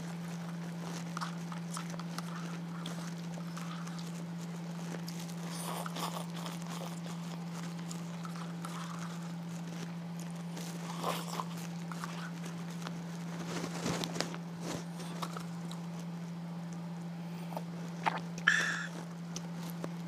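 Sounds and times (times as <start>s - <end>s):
slurping noodles: 0.0s - 13.1s, 17.4s - 19.1s
chewing and lip smacks: 0.0s - 20.0s
steady low hum: 0.0s - 20.0s.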